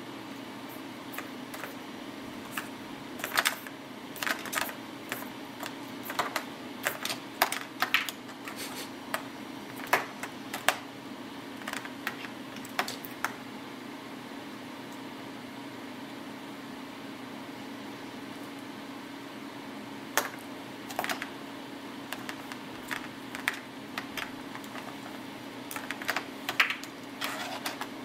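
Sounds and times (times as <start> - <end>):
steady low hum: 0.0 - 28.0
kitten claws tapping plastic tablet: 22.1 - 25.0.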